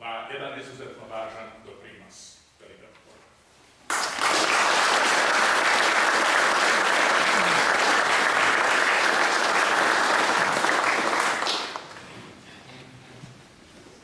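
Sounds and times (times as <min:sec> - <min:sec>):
audience applauding: 0:03.9 - 0:12.1.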